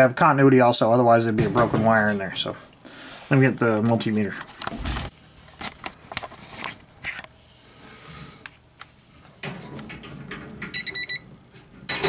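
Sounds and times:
multimeter continuity beep: 10.8 - 11.2.

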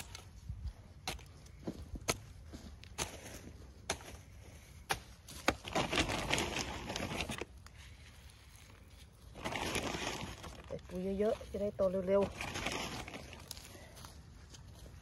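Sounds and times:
rustling and scraping: 0.0 - 15.0
hoe striking soil: 1.0 - 7.5.

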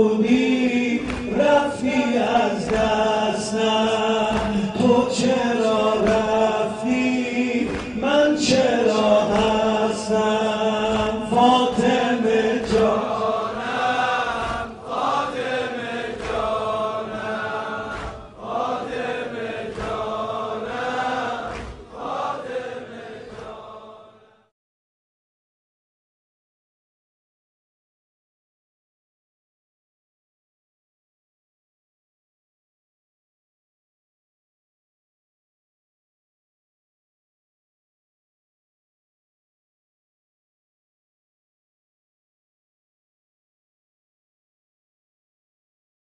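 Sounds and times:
man chanting into a microphone: 0.0 - 20.8.

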